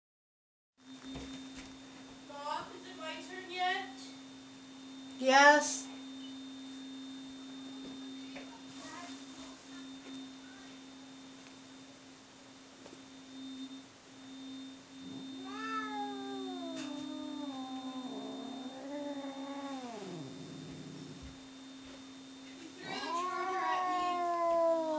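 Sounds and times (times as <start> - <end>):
cat yowling: 15.3 - 21.2, 22.8 - 24.9.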